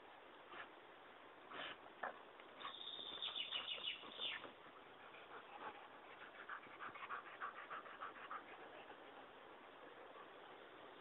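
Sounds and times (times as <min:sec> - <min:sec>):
dog panting: 0:01.5 - 0:10.5.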